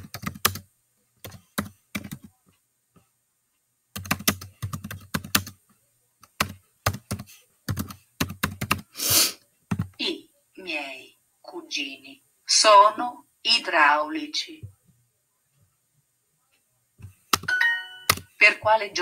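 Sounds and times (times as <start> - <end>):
keyboard typing: 0.0 - 2.4, 3.9 - 5.6, 6.2 - 8.9, 9.7 - 10.0, 17.0 - 18.4.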